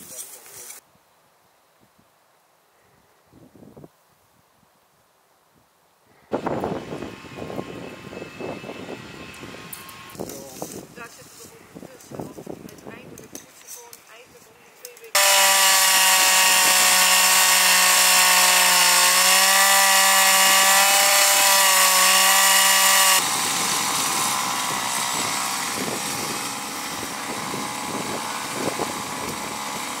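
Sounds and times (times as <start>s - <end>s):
earth auger petrol engine running: 15.2s - 30.0s.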